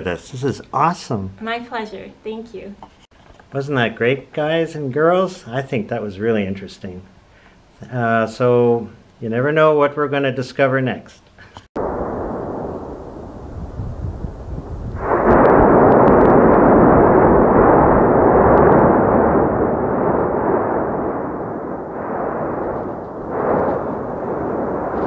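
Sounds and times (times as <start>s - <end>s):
volcanic eruption roar: 11.8s - 25.0s.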